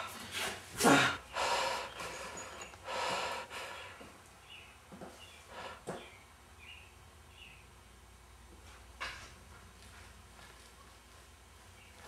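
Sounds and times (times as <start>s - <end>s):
person breathing heavily: 0.0s - 4.1s, 5.4s - 6.0s.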